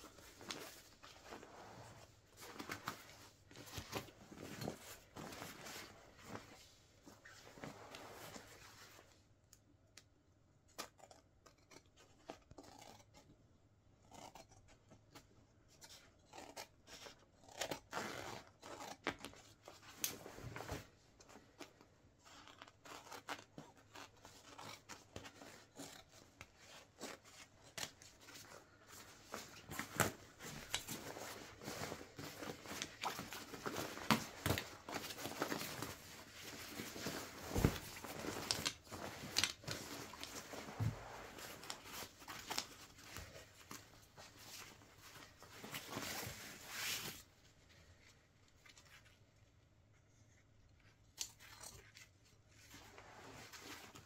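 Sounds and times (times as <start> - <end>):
fabric rustling: 0.0 - 9.2, 23.0 - 48.9
scissors snipping fabric: 10.7 - 13.4, 14.0 - 15.3.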